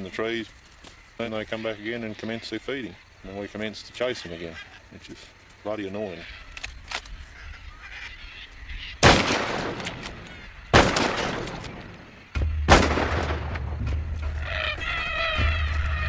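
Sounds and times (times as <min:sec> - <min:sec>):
cockatoos squawking: 0:00.0 - 0:12.3, 0:14.2 - 0:16.0
rifle shots echoing: 0:09.0 - 0:14.0.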